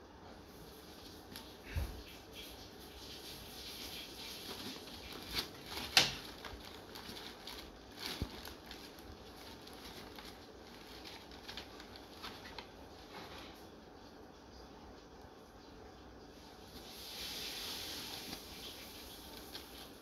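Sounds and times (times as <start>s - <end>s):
bags rustling and crinkling: 3.2s - 13.8s, 16.6s - 20.0s.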